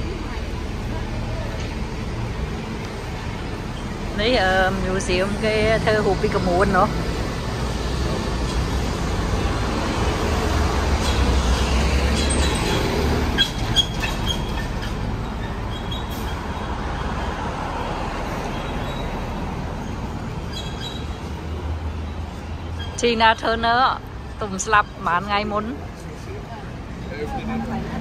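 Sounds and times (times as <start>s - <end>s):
engine rumble: 0.0s - 28.0s.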